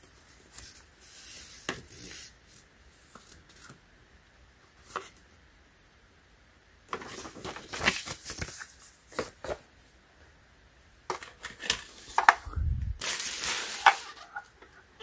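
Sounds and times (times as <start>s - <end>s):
paper and cardboard rustling: 6.9s - 9.7s, 11.1s - 14.6s.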